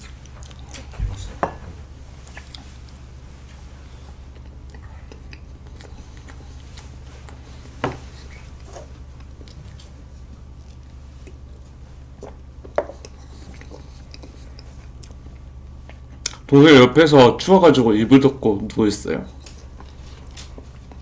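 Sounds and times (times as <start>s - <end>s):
soft chewing: 0.0s - 16.5s, 19.2s - 21.0s
steady low hum: 0.0s - 21.0s
sharp knocks: 1.0s - 1.9s.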